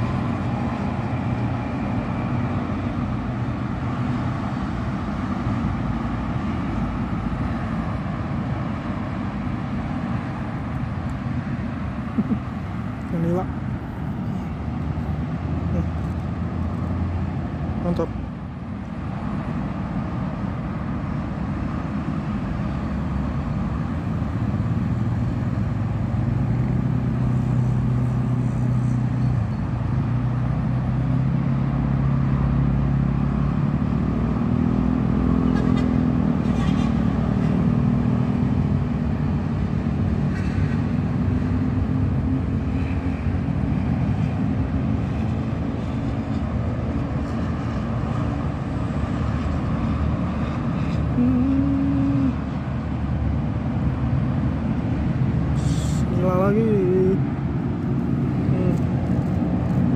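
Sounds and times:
heavy vehicle engines droning: 0.0s - 59.9s
traffic rumble: 0.0s - 59.9s.

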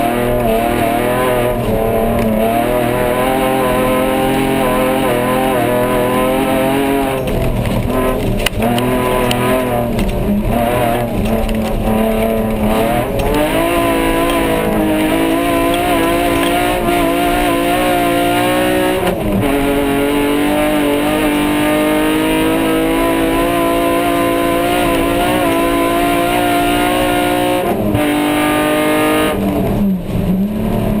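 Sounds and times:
race car engine under load: 0.0s - 31.0s.

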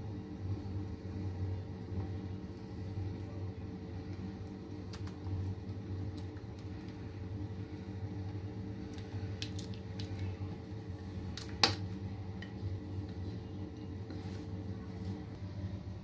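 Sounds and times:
steady low hum: 0.0s - 16.0s
custard squishing: 3.9s - 12.1s.

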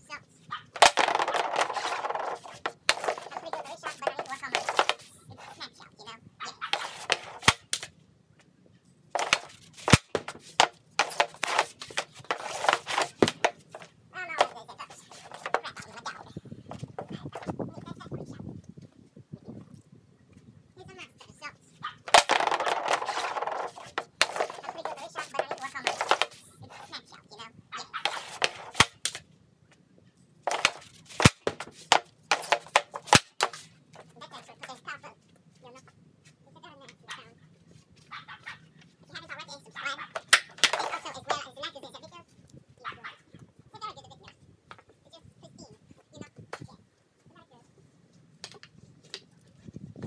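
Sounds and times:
stick striking puck: 0.8s - 5.1s, 6.6s - 7.9s, 9.2s - 16.0s, 22.1s - 26.4s, 28.0s - 29.2s, 30.5s - 33.7s, 40.1s - 41.4s
hockey stick scraping plastic: 0.8s - 5.6s, 6.5s - 7.9s, 9.2s - 17.5s, 22.1s - 26.9s, 28.0s - 29.2s, 30.5s - 34.8s, 39.9s - 41.5s.

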